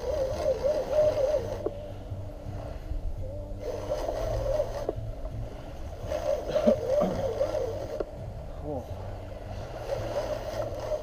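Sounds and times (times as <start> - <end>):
fishing reel whining: 0.0 - 1.9, 3.5 - 8.1, 9.6 - 11.0
low steady rumble: 0.0 - 11.0.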